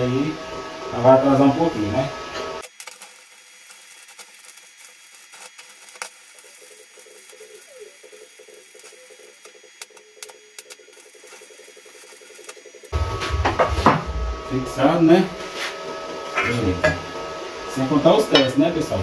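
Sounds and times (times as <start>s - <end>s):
welding arc crackling and sizzling: 0.0s - 19.0s
sharp welding pops: 2.6s - 14.3s.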